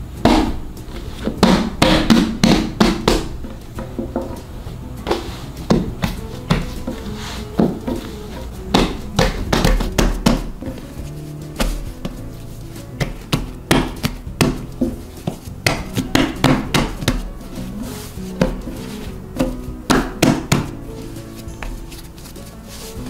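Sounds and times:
background music: 0:00.0 - 0:23.0
dough thudding on wooden table: 0:00.2 - 0:04.3, 0:08.7 - 0:12.2, 0:13.0 - 0:20.8.

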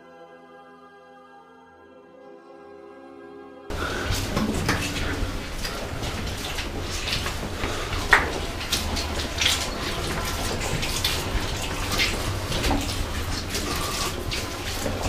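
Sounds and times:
footsteps crunching on gritty floor: 0:03.7 - 0:15.0.

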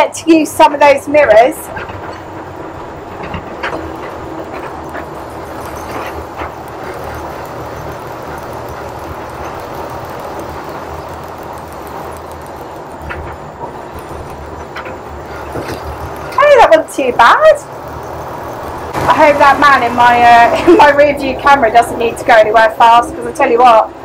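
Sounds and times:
truck engine running: 0:01.3 - 0:24.0.

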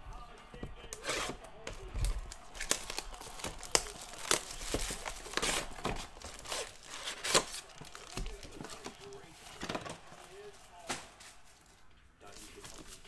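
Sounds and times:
cardboard box opening: 0:00.9 - 0:09.0
plastic wrap ripping and crinkling: 0:00.9 - 0:09.2.

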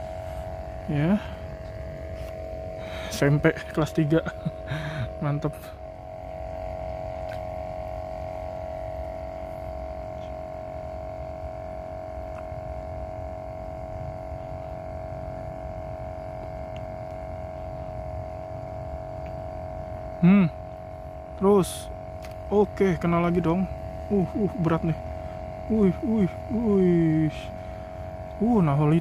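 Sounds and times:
low rumbling noise: 0:00.0 - 0:10.2
steady mid-pitched hum: 0:00.0 - 0:29.0.

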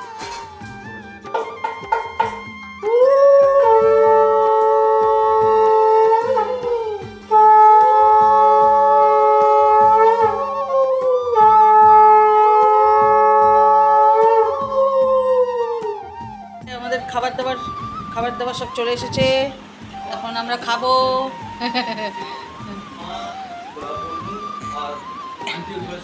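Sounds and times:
conch shell blasts: 0:03.4 - 0:14.7.

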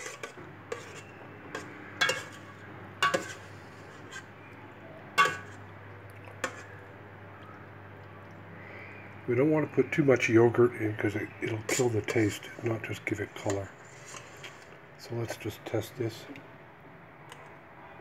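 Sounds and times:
spoon clinking against metal pot: 0:00.0 - 0:03.5, 0:05.2 - 0:05.6
spoon stirring thick stew: 0:00.0 - 0:04.5, 0:05.2 - 0:06.8, 0:11.0 - 0:15.4.

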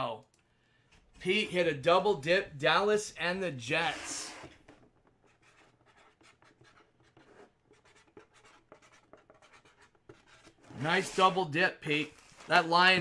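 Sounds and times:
felt-tip marker scratching: 0:05.2 - 0:11.3.

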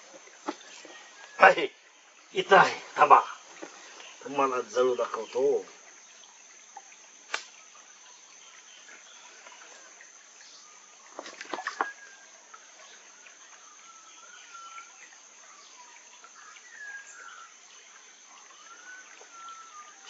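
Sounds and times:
high insect drone: 0:00.0 - 0:20.0.

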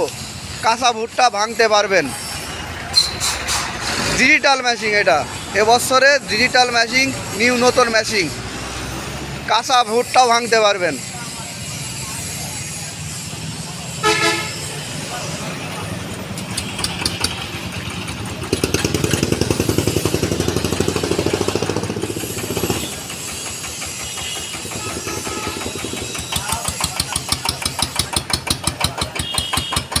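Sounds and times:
engine chugging: 0:09.5 - 0:30.0.

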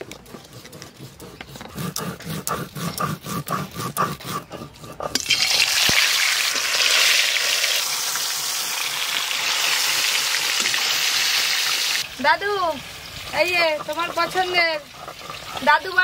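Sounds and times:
rhythmic scraping: 0:00.0 - 0:05.7, 0:13.4 - 0:16.0
fish sizzling in hot oil: 0:05.2 - 0:16.0.

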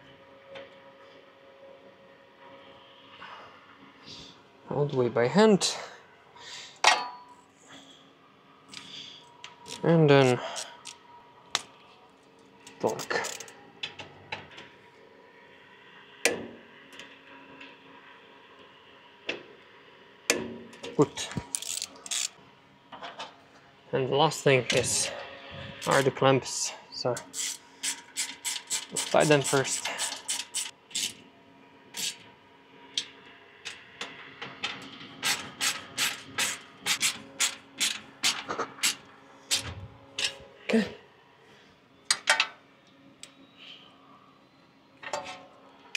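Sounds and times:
torque wrench clicking: 0:21.4 - 0:22.3, 0:27.2 - 0:31.2, 0:32.0 - 0:32.2.

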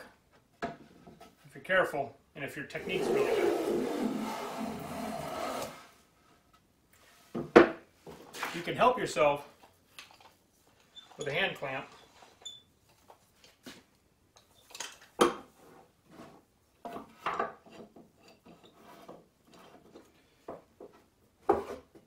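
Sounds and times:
wooden clamp knocks and clunks: 0:00.3 - 0:01.4, 0:07.3 - 0:07.9.

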